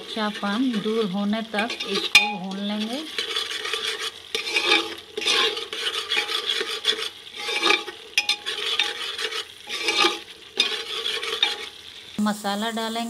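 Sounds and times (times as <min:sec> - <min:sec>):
spoon scraping a pot: 0:00.0 - 0:11.8
masala frying: 0:00.0 - 0:13.0.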